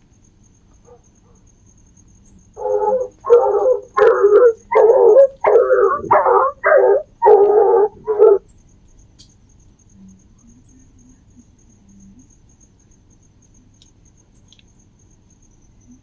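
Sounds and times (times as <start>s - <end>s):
crickets chirping: 0.0s - 16.0s
dog barking: 0.8s - 1.5s, 2.6s - 8.4s.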